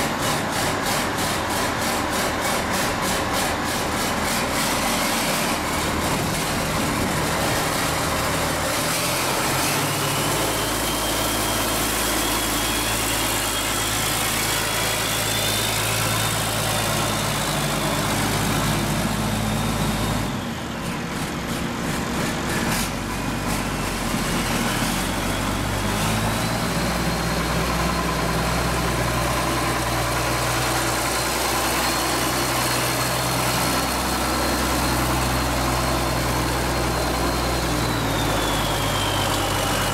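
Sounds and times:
diesel engine running: 0:00.0 - 0:39.9
high turbo whistle: 0:04.4 - 0:20.9, 0:23.3 - 0:39.9.

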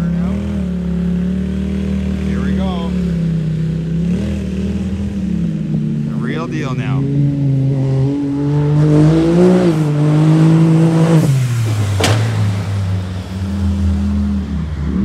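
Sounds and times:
utility vehicle engine running hard: 0:00.0 - 0:15.0
sharp knock: 0:12.0 - 0:12.6.

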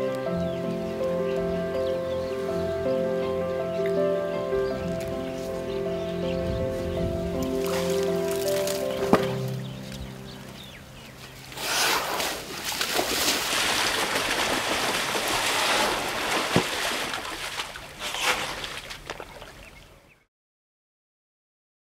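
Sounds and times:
background music: 0:00.0 - 0:11.6
elephants splashing in mud: 0:07.4 - 0:09.8, 0:11.2 - 0:19.9.

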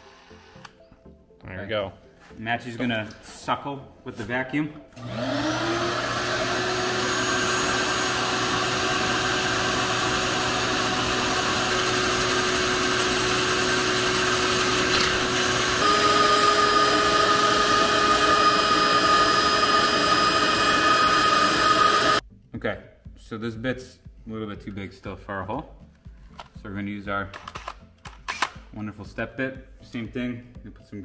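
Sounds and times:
vacuum running: 0:04.9 - 0:22.2.

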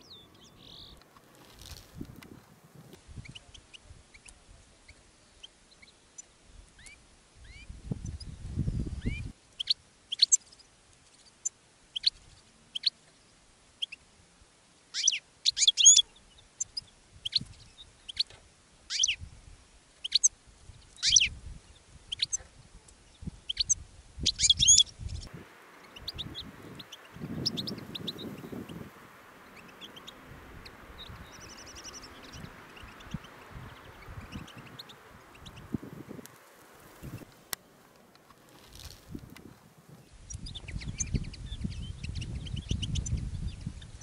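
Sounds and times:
finches chirping: 0:00.0 - 0:01.8, 0:21.0 - 0:21.3, 0:23.1 - 0:39.0
steady hiss: 0:25.0 - 0:40.4.

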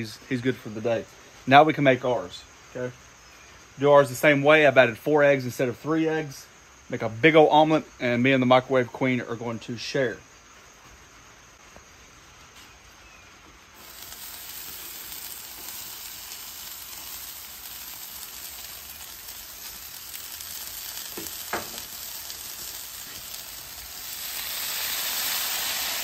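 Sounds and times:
vegetables sizzling on griddle: 0:10.1 - 0:26.0.

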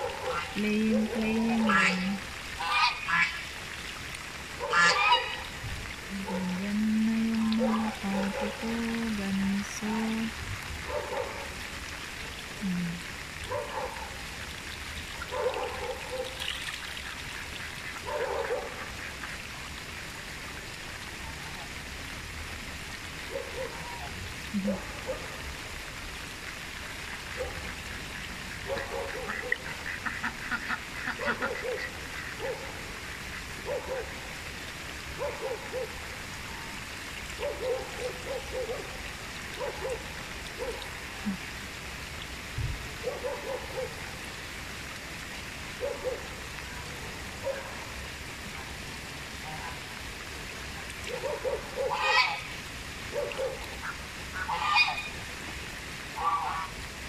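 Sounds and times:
rain falling on water: 0:00.0 - 0:57.0
geese honking: 0:01.4 - 0:03.4, 0:04.7 - 0:05.5, 0:51.9 - 0:52.4, 0:53.8 - 0:55.1.

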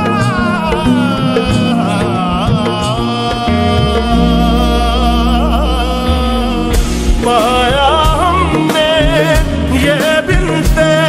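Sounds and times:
slowed reverb-heavy song: 0:00.0 - 0:11.0
low sustained notes: 0:00.6 - 0:08.5.

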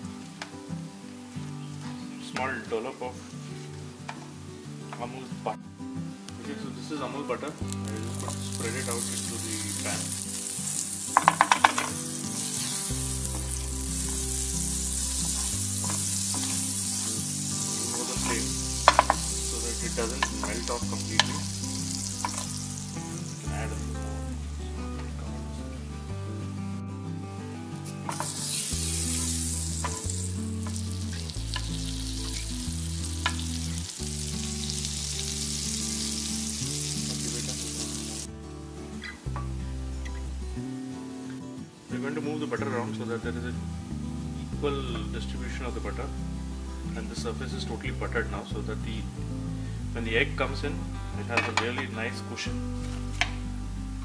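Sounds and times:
background music: 0:00.0 - 0:54.0
butter sizzling in a pan: 0:07.5 - 0:25.0, 0:27.8 - 0:38.3
spatula tapping a pan: 0:11.1 - 0:12.0, 0:15.4 - 0:16.5, 0:18.8 - 0:19.3, 0:20.2 - 0:21.5, 0:22.2 - 0:22.5, 0:33.2 - 0:33.5.

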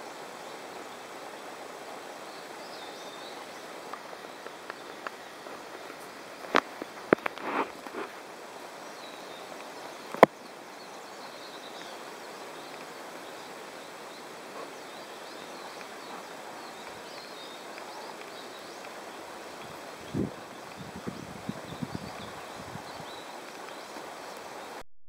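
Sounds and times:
steady background hiss: 0:00.0 - 0:24.8
faint bird chirps: 0:08.8 - 0:24.8.

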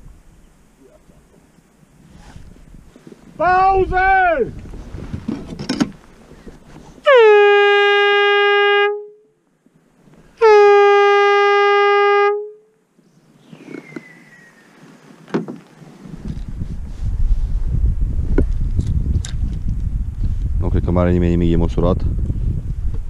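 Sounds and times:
air horn blasts: 0:07.0 - 0:09.3, 0:10.4 - 0:12.7.

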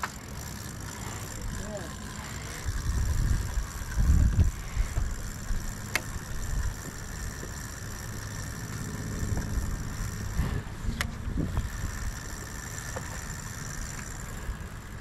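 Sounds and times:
wind buffeting microphone: 0:01.4 - 0:08.3, 0:09.1 - 0:12.5.

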